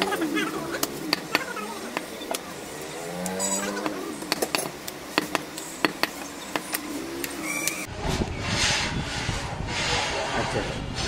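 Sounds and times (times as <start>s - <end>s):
faint voices: 0.0s - 4.3s
sharp knocks and clicks: 3.2s - 7.8s
steady rushing noise: 4.2s - 11.0s.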